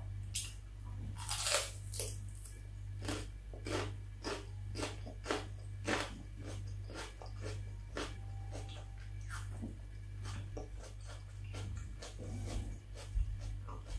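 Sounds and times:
crunchy bites into pepper: 1.2s - 2.2s
crisp chewing: 1.2s - 13.9s.

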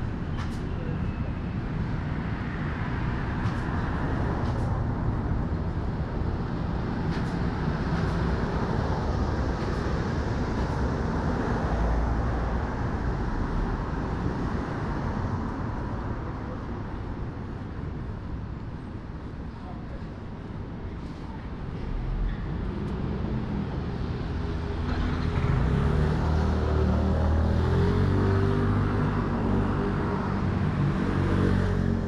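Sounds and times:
traffic noise: 0.0s - 32.0s.

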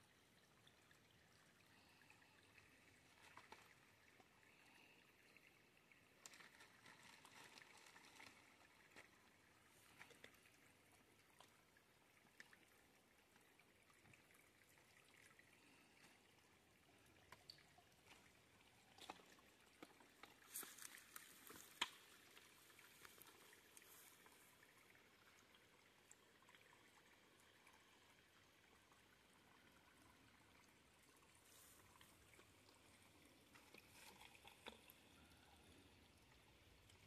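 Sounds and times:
trickling creek water: 0.0s - 37.0s.

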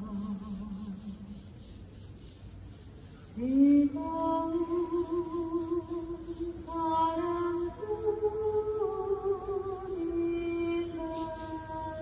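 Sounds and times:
person singing with vibrato: 0.0s - 1.4s, 3.4s - 12.0s.

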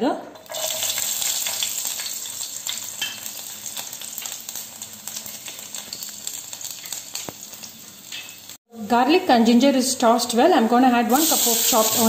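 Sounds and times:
ginger and garlic sizzling in oil: 0.4s - 8.7s, 11.1s - 12.0s.

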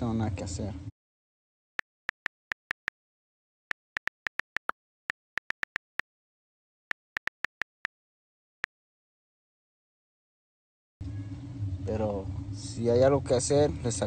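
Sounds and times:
phone keyboard clicks: 1.8s - 2.9s, 3.7s - 6.0s, 6.9s - 7.9s.

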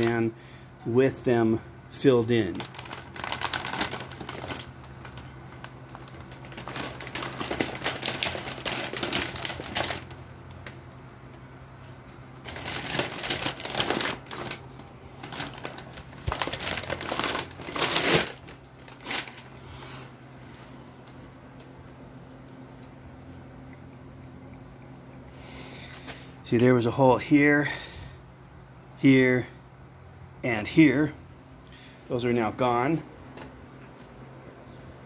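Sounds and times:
steady low hum: 0.0s - 35.0s
packing paper rustling: 2.1s - 10.8s, 11.8s - 19.7s.

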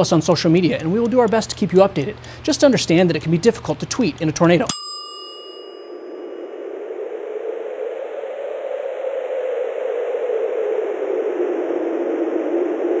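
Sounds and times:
rushing wind: 5.9s - 13.0s.

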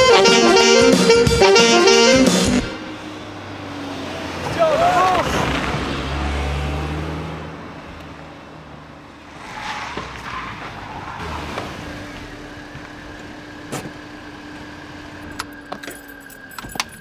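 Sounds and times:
car engine running: 10.5s - 17.0s.

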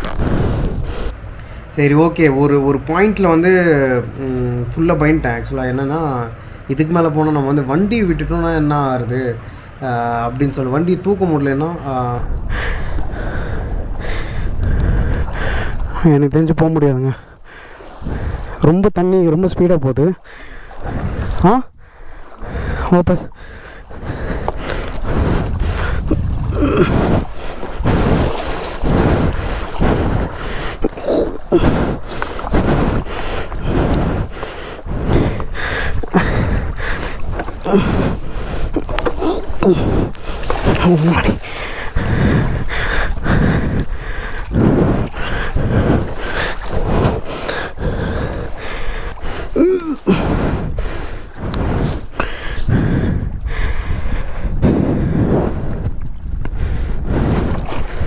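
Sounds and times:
wind rumbling on microphone: 0.0s - 5.5s, 6.7s - 58.0s
water sloshing and splashing: 0.0s - 58.0s
person panting heavily: 12.4s - 15.9s, 20.2s - 55.8s
person grunting: 26.4s - 27.0s, 30.8s - 31.8s, 37.6s - 37.9s, 39.2s - 40.1s, 49.6s - 50.2s.

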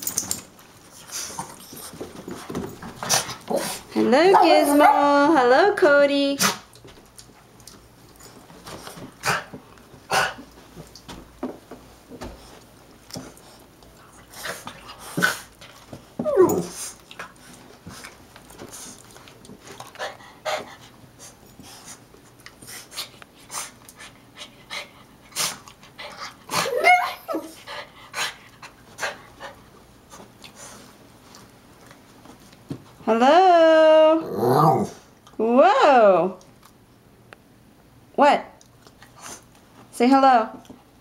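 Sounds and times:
dogs whining: 16.2s - 16.9s, 26.5s - 27.6s.

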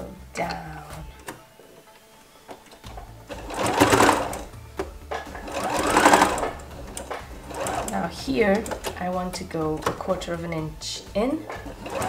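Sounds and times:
sewing machine stitching: 2.6s - 10.2s, 11.4s - 12.0s.

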